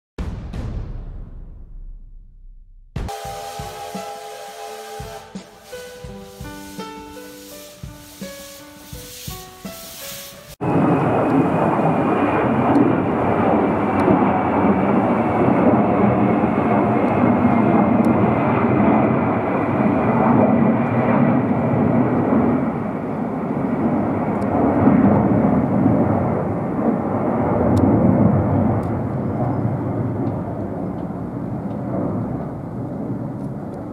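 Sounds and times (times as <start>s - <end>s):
jet engine rumble with high whine: 10.6s - 33.9s.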